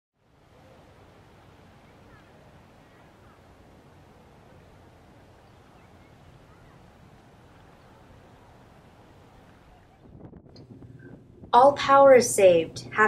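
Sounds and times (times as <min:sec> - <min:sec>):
low rumble and hiss: 0:00.2 - 0:13.0
faint bird chirps: 0:05.4 - 0:08.3.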